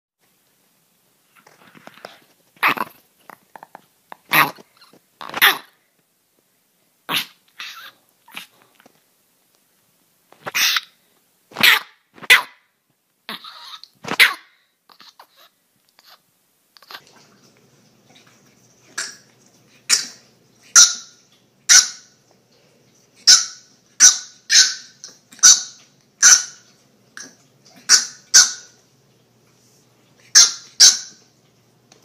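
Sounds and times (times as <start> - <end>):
small dog yapping: 2.6 - 3.0, 4.3 - 5.8, 10.4 - 10.9, 11.5 - 12.7, 13.3 - 16.2, 23.2 - 26.6.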